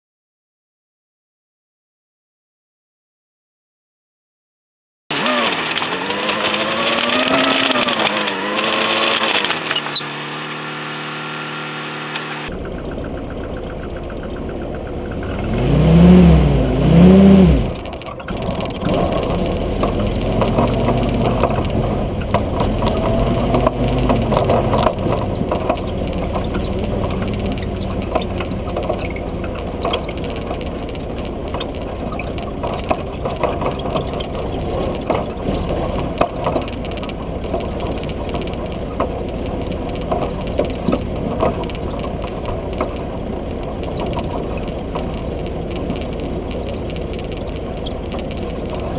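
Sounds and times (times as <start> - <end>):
jeep engine revving: 5.1 - 48.9
vehicle body rattling: 11.9 - 48.9.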